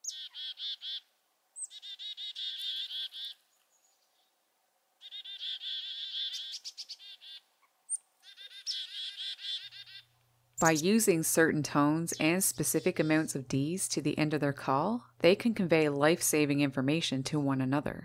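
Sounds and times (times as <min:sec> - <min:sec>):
chickadee calling: 0:00.0 - 0:04.3, 0:05.0 - 0:13.8.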